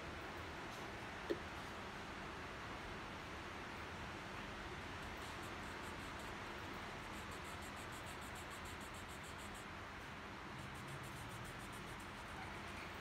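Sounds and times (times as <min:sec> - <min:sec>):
steady hiss: 0:04.4 - 0:13.0
marker scratching on paper: 0:05.0 - 0:06.4, 0:07.0 - 0:09.8, 0:10.5 - 0:13.0.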